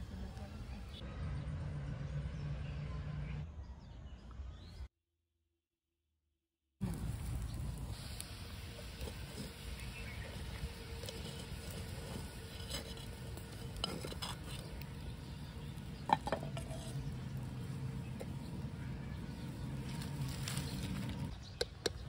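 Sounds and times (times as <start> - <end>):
wood fire: 6.8 - 22.0.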